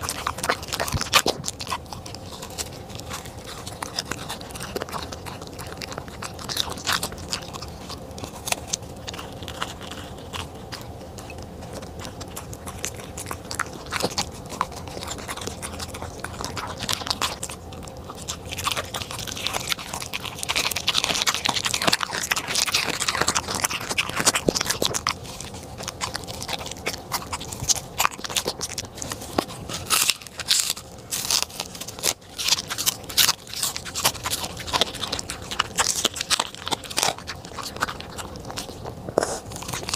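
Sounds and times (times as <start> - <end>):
dog chewing and crunching food: 0.0 - 39.9.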